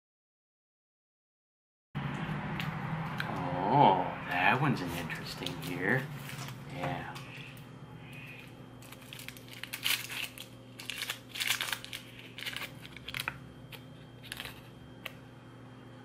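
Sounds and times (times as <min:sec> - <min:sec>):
paper wrapper crinkling: 0:08.2 - 0:15.2.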